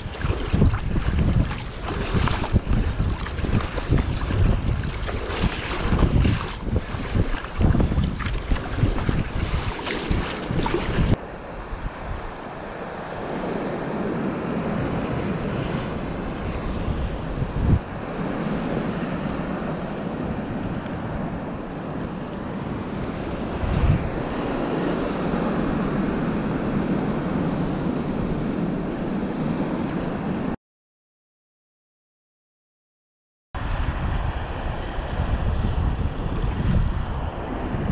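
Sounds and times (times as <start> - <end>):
water washing around kayak: 0.0 - 11.2
wind buffeting microphone: 0.0 - 30.6, 33.6 - 37.9.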